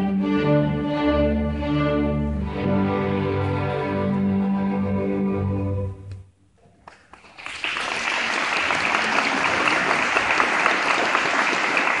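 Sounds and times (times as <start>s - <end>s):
string orchestra chord: 0.0s - 6.2s
audience applauding: 6.8s - 12.0s.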